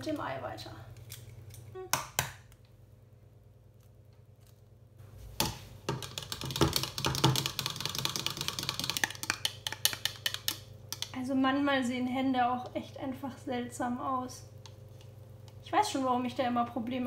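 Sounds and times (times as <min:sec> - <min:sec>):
whisk clattering in plastic cup: 0:05.9 - 0:11.1.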